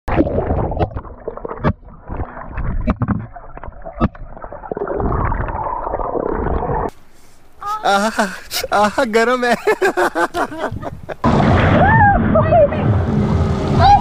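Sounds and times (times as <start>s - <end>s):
underwater gurgling and bubbling: 0.1s - 6.9s.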